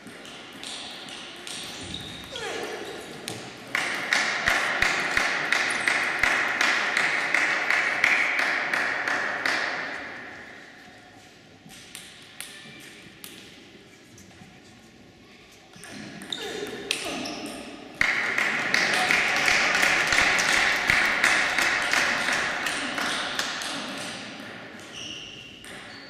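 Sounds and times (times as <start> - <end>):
group clapping: 3.7 - 10.0, 18.0 - 24.2.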